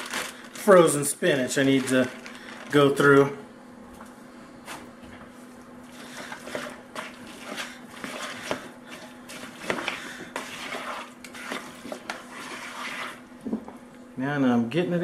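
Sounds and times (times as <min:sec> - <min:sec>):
faint steady hum: 0:00.0 - 0:15.0
spoon squelching and scraping bowl: 0:05.9 - 0:13.3.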